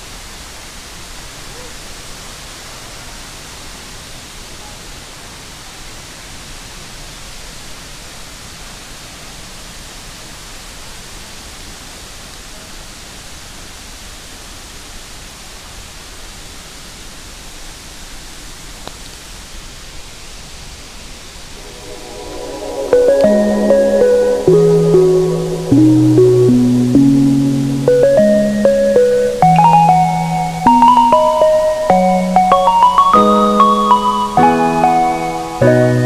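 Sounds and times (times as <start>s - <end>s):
waterfall rushing: 21.3s - 35.6s.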